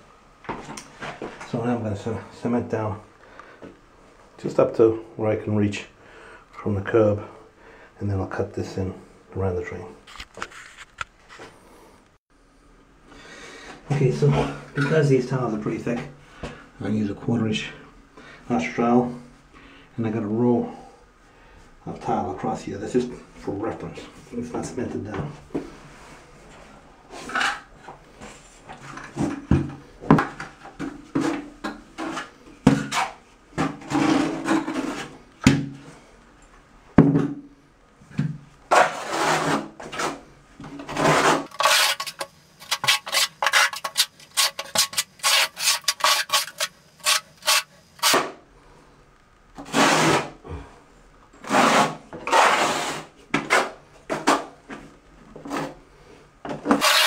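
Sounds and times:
trowel scraping cement: 38.7s - 40.2s, 40.8s - 48.3s, 49.6s - 50.4s, 51.4s - 53.7s, 56.7s - 57.0s.

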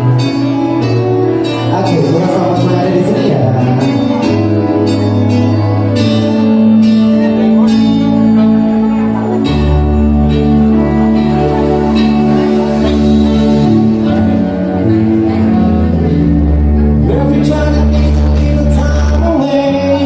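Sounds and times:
bass line: 0.0s - 20.0s
live band playing: 0.0s - 20.0s
person singing: 7.2s - 20.0s.

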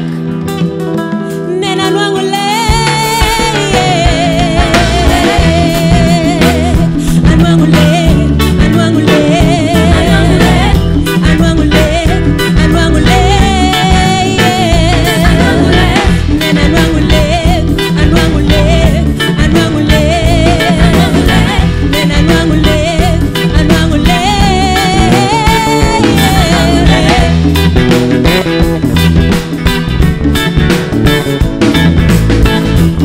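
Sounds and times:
woman singing: 1.3s - 27.8s
hand drums: 2.4s - 33.0s.

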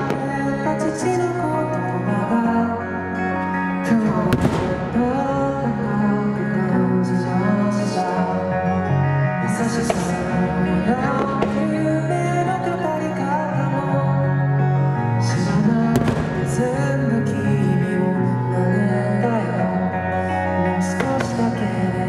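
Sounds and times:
fireworks bangs and crackling: 0.0s - 0.7s, 4.3s - 5.3s, 11.0s - 11.8s, 16.0s - 16.6s.

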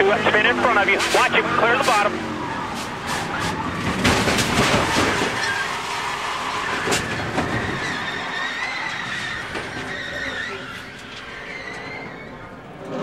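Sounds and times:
race car engine: 0.0s - 13.0s
chassis rattle: 0.7s - 10.0s.

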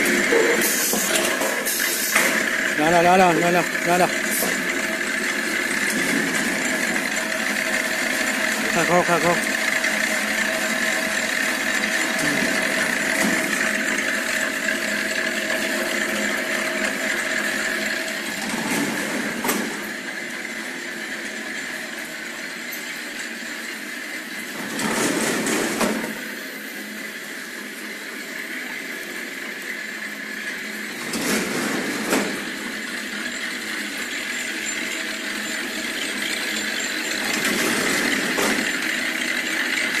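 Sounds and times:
machine clatter: 0.0s - 23.7s, 24.4s - 26.3s, 28.3s - 40.0s
machine whirring with high hum: 0.0s - 40.0s.

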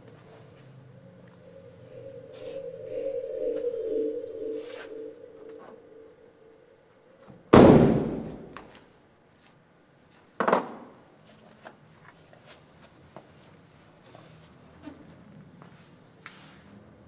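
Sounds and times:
loud bangs in large room: 7.4s - 8.6s.

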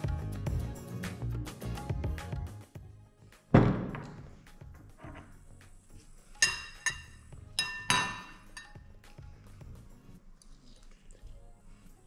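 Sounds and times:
background music: 0.0s - 12.0s
metal fork clinking on ceramic bowl: 6.4s - 8.8s.

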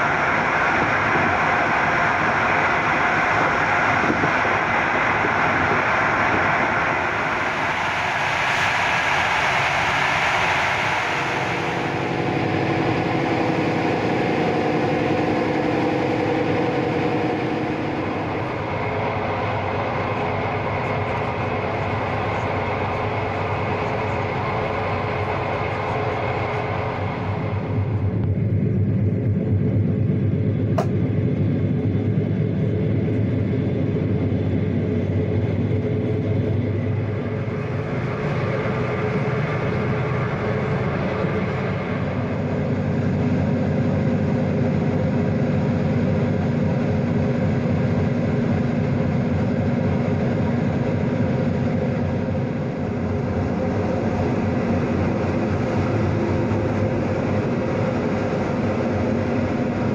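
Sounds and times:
passenger train rumbling: 0.0s - 59.9s
sharp click: 30.7s - 31.0s.

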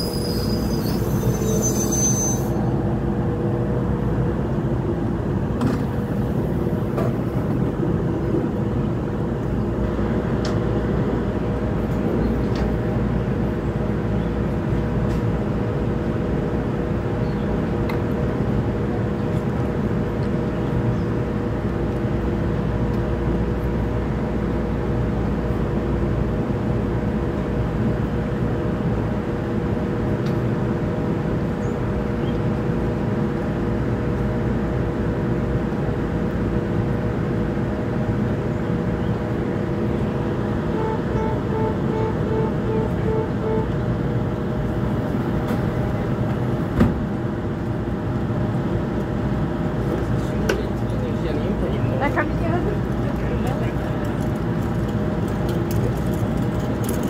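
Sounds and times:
train wheel squeal: 0.0s - 2.8s
train low hum with held tones: 0.0s - 57.0s.

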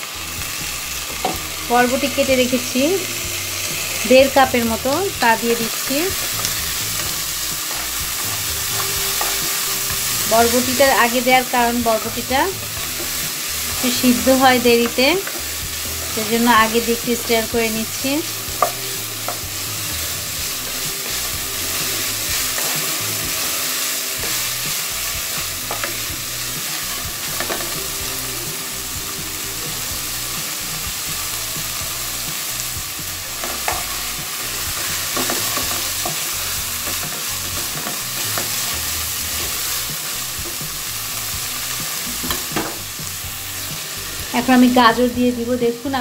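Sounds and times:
food sizzling in hot oil: 0.0s - 46.0s
spatula scraping pan: 1.1s - 27.9s.

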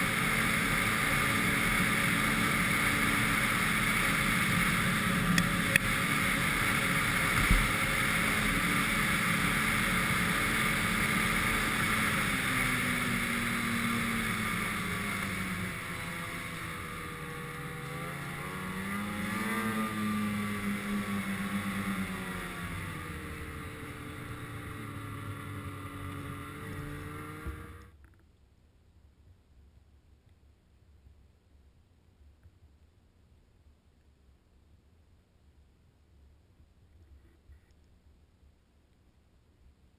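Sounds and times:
snowmobile engine running: 0.0s - 27.9s
wind: 0.0s - 39.9s.

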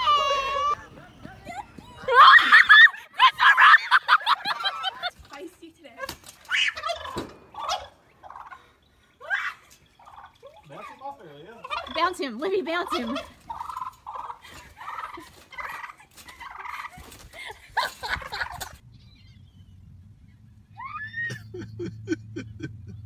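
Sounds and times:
turkey gobbling: 6.5s - 8.7s, 9.4s - 12.2s, 12.8s - 17.2s.

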